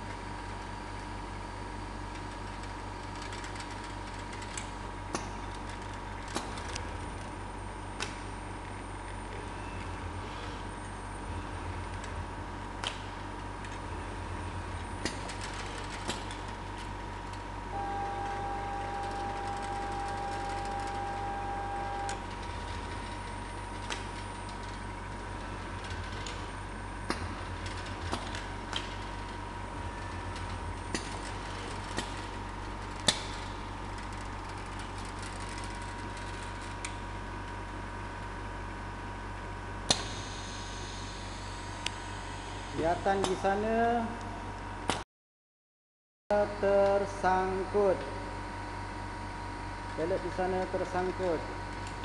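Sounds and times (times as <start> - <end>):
conveyor humming and whining: 0.0 - 45.0, 46.3 - 52.0
steady high tone: 17.7 - 22.4.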